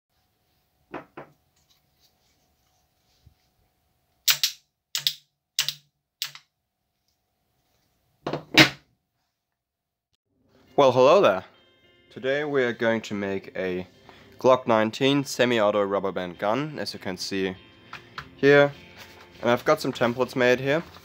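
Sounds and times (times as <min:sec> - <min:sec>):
rubber band gun clacks: 0:04.3 - 0:06.4.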